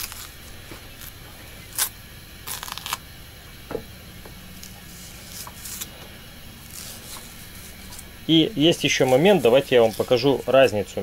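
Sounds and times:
plantain skin tearing: 0.0 - 3.1, 4.5 - 6.0, 6.6 - 8.1, 8.8 - 10.5.

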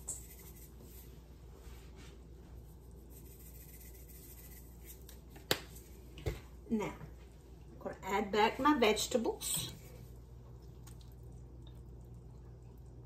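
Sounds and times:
dried herbs shaken from shaker: 0.0 - 1.2, 2.9 - 5.9.

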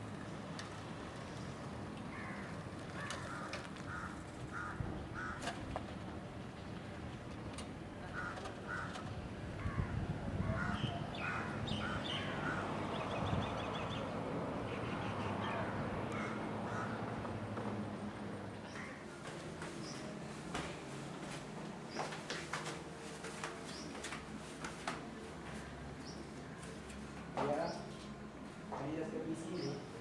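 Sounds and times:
crows cawing: 2.1 - 5.6, 8.1 - 12.8, 15.3 - 17.3, 18.7 - 19.0.

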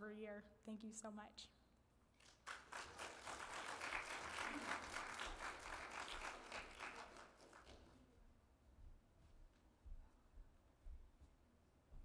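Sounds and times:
crowd applauding: 2.2 - 8.0.

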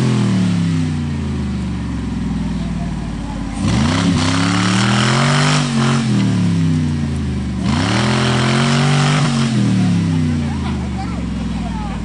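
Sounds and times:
engine revving hard under load: 3.4 - 10.7.

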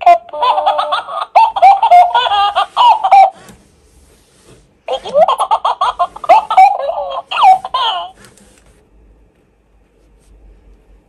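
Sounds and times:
toy voice and laughter: 0.0 - 3.4, 4.9 - 8.2.

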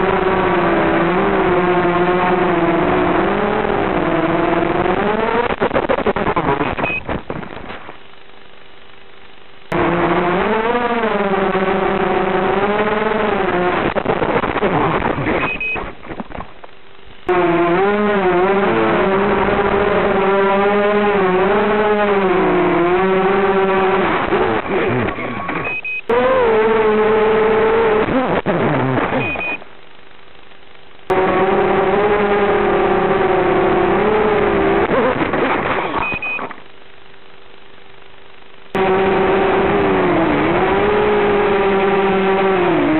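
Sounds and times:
faint hum: 5.4 - 12.0, 24.2 - 31.1, 32.4 - 38.8.

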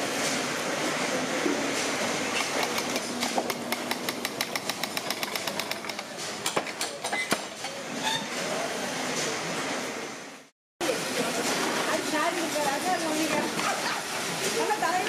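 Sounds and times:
machine clicking rapidly: 2.4 - 6.6.

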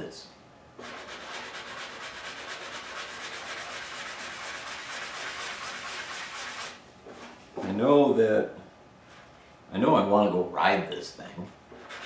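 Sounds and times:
hand sanding block scratching: 0.8 - 6.8, 11.8 - 12.0.

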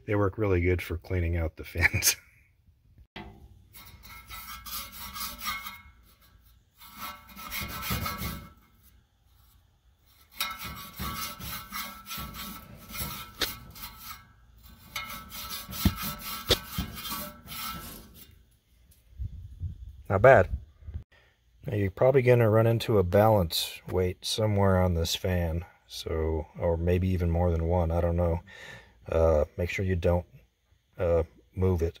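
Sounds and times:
toothbrush scrubbing metal fins: 10.1 - 18.3.

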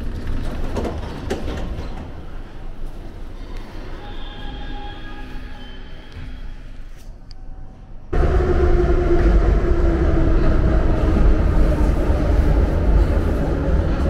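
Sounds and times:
train wheels rumbling on rails: 0.0 - 4.1, 8.1 - 14.0.

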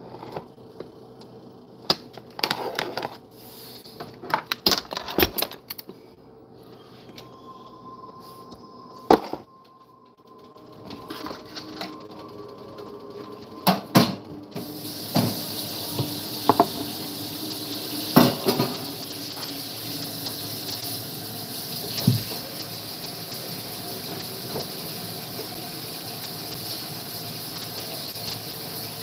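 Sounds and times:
range hood fan hissing: 10.3 - 29.0.

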